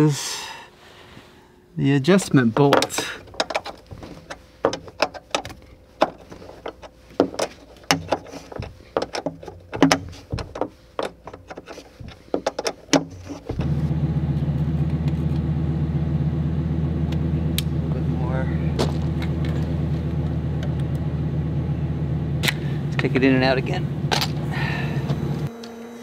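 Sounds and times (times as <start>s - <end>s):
steady mechanical hum: 0.0s - 26.0s
wrench metal clicks and knocks: 2.7s - 13.5s.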